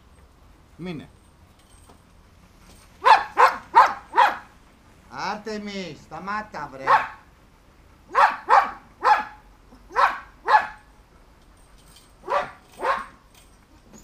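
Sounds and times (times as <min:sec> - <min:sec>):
dog barking: 0:03.0 - 0:04.5, 0:06.8 - 0:07.3, 0:08.1 - 0:10.9, 0:12.2 - 0:13.2.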